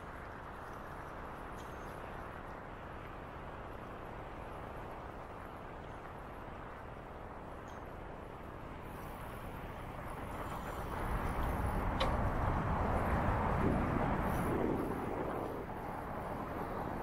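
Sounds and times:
traffic noise: 0.0s - 17.0s
wind rushing: 10.3s - 17.0s.

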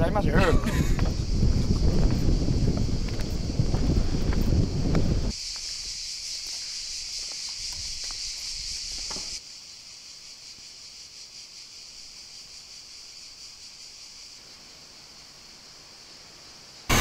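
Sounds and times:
insect chirring: 0.0s - 16.9s
footsteps on stone: 0.7s - 9.4s.

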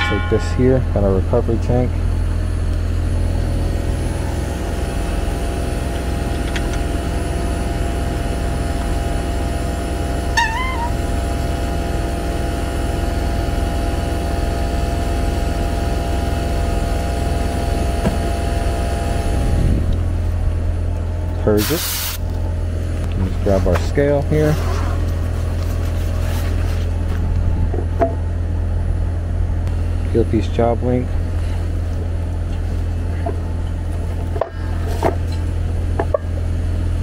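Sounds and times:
air conditioner hum: 0.0s - 37.0s
wavering chirp: 10.4s - 11.1s.

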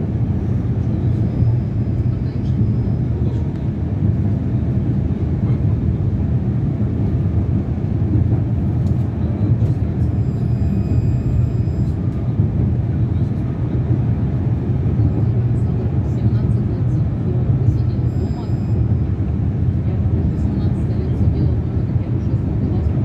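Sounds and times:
tram running gear rumble: 0.0s - 23.0s.

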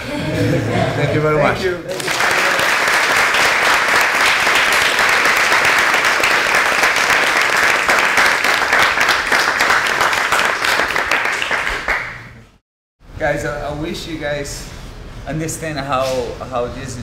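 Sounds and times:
group of people applauding: 1.9s - 12.5s.

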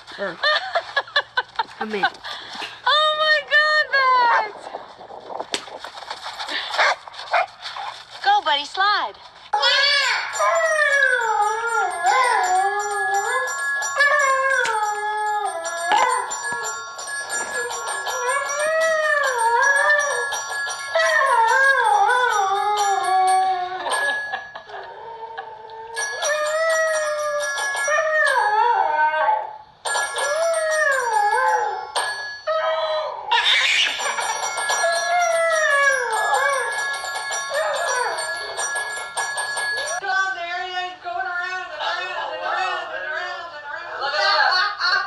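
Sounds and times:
dog howling: 9.7s - 16.8s, 17.4s - 23.9s, 30.2s - 33.5s, 34.8s - 36.8s.

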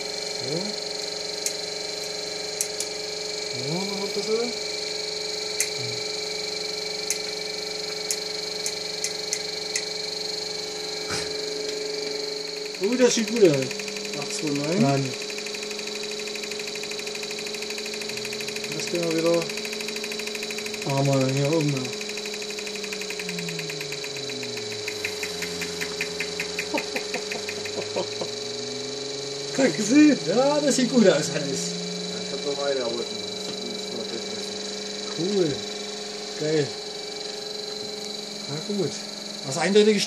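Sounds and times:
high-pitched electrical whine: 0.0s - 40.0s
sharp motor clicks: 0.0s - 40.0s.

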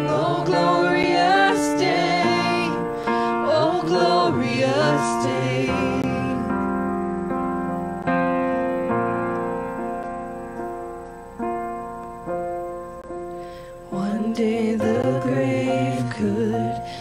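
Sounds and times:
voices singing: 0.0s - 6.9s, 13.9s - 17.0s
keyboard piano chords: 0.0s - 17.0s.

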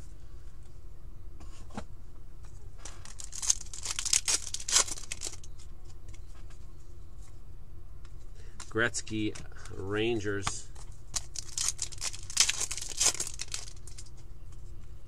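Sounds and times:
foil wrapper crinkling and tearing: 2.8s - 5.6s, 10.8s - 14.2s.

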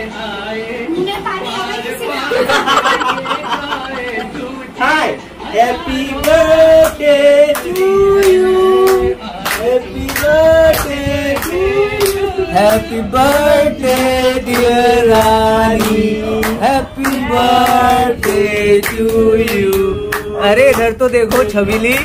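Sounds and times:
people singing together: 0.0s - 22.0s
people clapping along: 5.7s - 22.0s.

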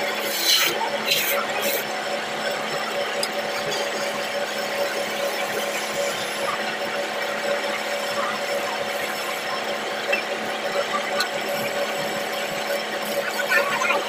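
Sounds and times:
wood lathe humming: 0.0s - 14.0s
chisel scraping turning wood: 0.2s - 1.8s.

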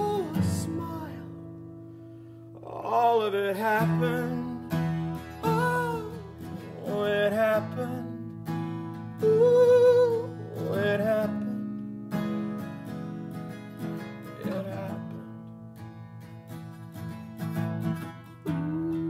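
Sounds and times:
man singing a slow song: 0.0s - 1.5s, 2.6s - 12.5s, 14.2s - 15.4s, 18.4s - 19.0s
acoustic guitar: 0.0s - 19.0s.

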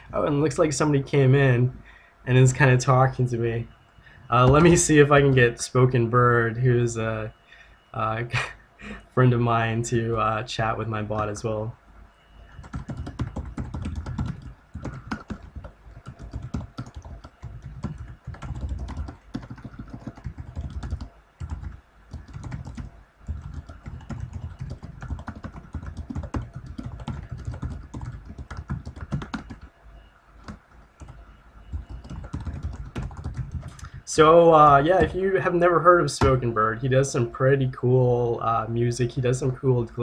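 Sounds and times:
keyboard typing: 12.4s - 29.7s, 30.4s - 35.2s.

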